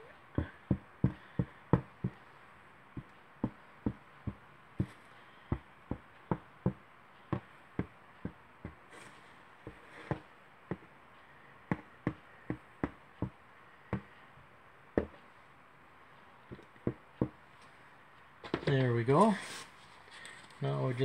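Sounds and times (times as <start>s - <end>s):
soft handling rustle: 8.8s - 11.3s, 18.4s - 21.0s.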